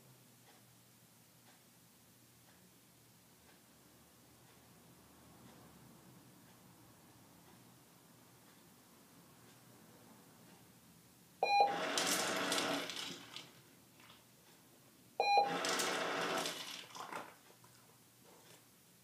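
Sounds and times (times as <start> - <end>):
treat dispenser beep: 11.4 - 13.0, 15.2 - 16.6.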